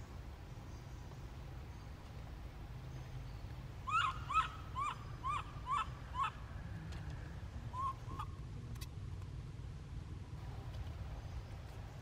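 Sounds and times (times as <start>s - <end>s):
animal calling: 3.9s - 6.4s.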